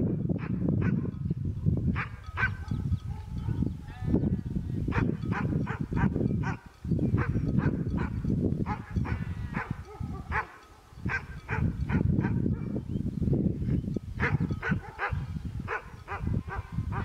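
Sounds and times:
wind rumble on microphone: 0.0s - 17.0s
dog barking: 0.4s - 1.2s, 1.9s - 4.0s, 4.9s - 12.8s, 14.2s - 17.0s.

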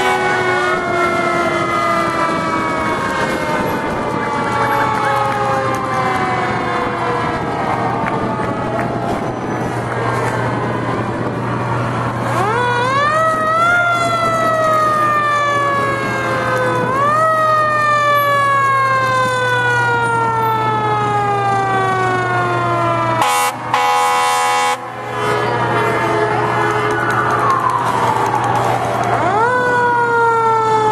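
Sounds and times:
air horn blast: 0.0s - 1.3s, 23.2s - 27.4s
fire engine siren wailing: 0.0s - 30.9s.

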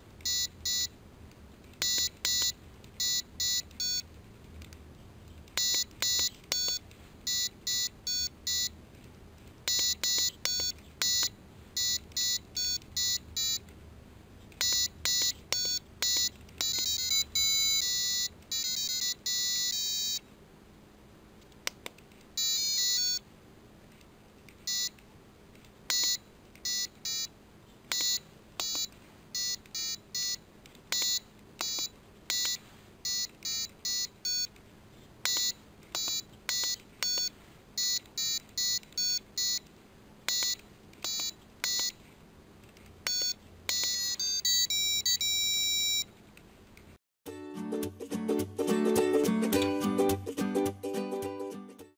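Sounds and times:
piezo buzzer beeps: 0.2s - 1.0s, 1.8s - 4.1s, 5.6s - 8.8s, 9.7s - 13.6s, 14.6s - 20.2s, 22.4s - 23.2s, 24.7s - 25.0s, 25.9s - 27.3s, 27.9s - 34.5s, 35.3s - 39.6s, 40.3s - 42.0s, 43.1s - 46.1s.

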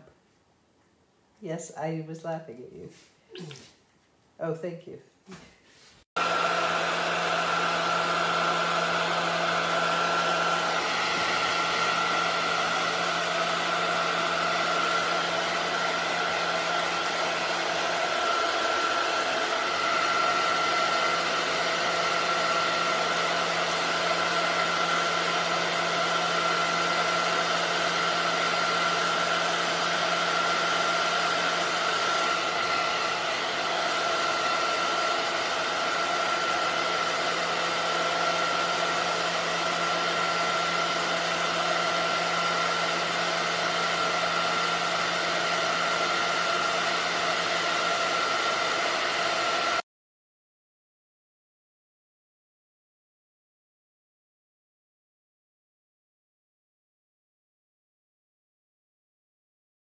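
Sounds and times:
hair dryer running: 6.1s - 49.9s.

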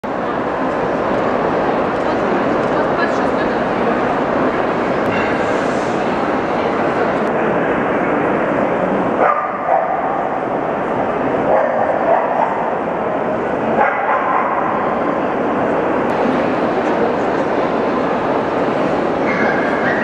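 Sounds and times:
busy hall background noise: 0.0s - 20.0s.

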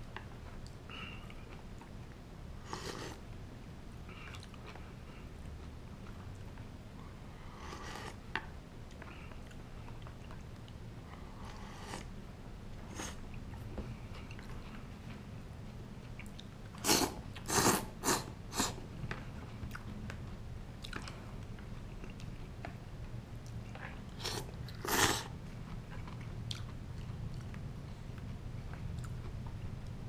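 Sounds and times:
person sipping and chewing: 2.6s - 3.2s, 7.4s - 8.2s, 16.2s - 18.8s, 23.8s - 25.4s
loud noodle slurps: 16.8s - 18.8s, 24.2s - 25.3s.

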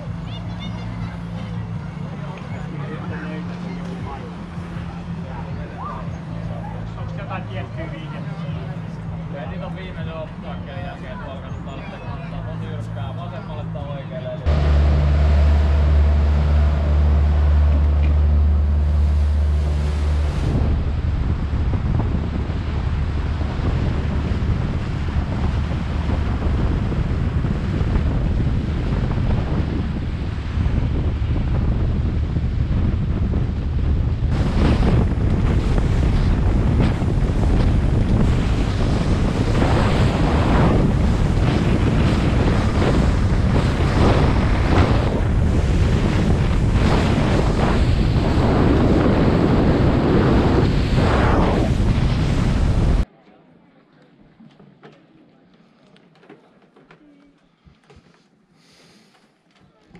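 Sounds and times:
motorboat engine rumble: 0.0s - 53.1s
water rushing along a hull: 0.0s - 53.1s
wind buffeting the microphone: 16.9s - 53.1s.

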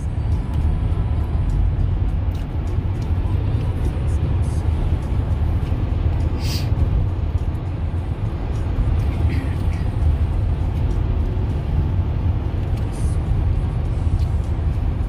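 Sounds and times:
car cabin road and engine noise: 0.0s - 15.0s
brief hiss: 6.4s - 6.7s
tyre hiss: 6.4s - 6.8s.

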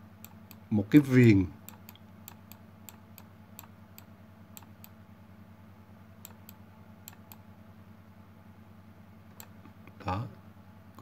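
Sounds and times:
low electrical hum: 0.0s - 11.0s
computer mouse clicking: 0.2s - 0.6s, 1.6s - 5.0s, 6.2s - 7.4s, 9.4s - 9.6s.

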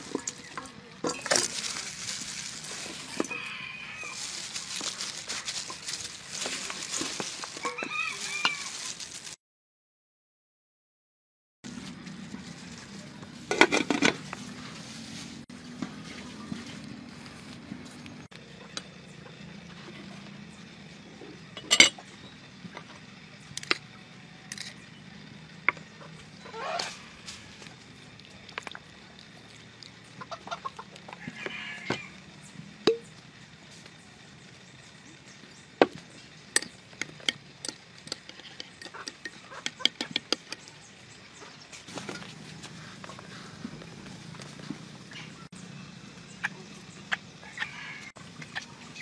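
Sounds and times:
spoon clinking against glass bowl: 21.6s - 22.0s
chickens clucking: 29.0s - 33.0s, 35.4s - 49.0s.

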